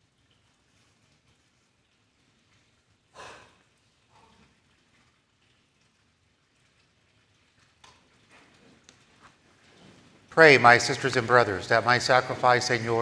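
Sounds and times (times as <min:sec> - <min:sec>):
faint small clicks: 0:07.6 - 0:09.0.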